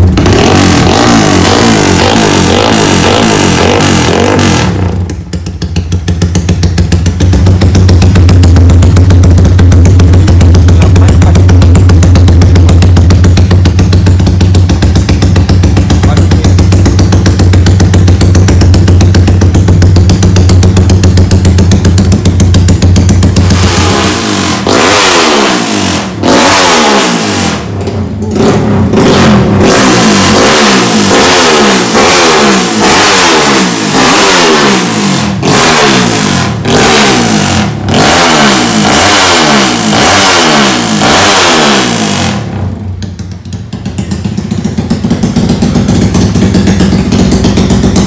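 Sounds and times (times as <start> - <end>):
motorcycle engine revving: 0.0 - 48.0.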